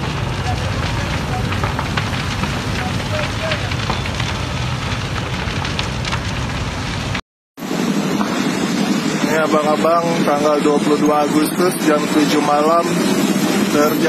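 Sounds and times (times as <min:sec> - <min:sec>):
building fire crackling: 0:00.0 - 0:14.0.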